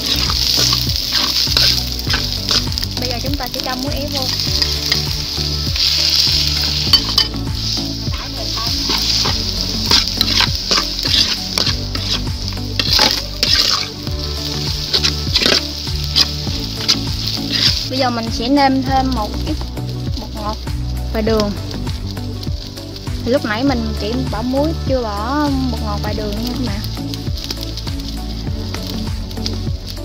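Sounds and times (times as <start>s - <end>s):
metal spoon scraping a pan: 0.0s - 2.9s, 4.3s - 18.0s
rice sizzling in a wok: 0.0s - 30.0s.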